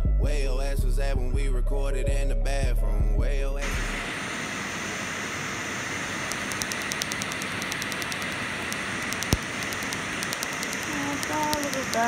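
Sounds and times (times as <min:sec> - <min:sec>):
steady hiss: 0:03.6 - 0:12.0
laser snapping clicks: 0:06.2 - 0:12.0.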